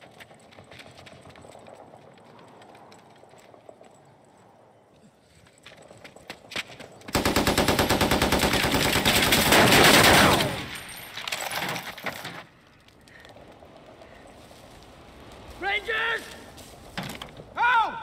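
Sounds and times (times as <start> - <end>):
rapid machine-gun fire: 7.1 - 10.8.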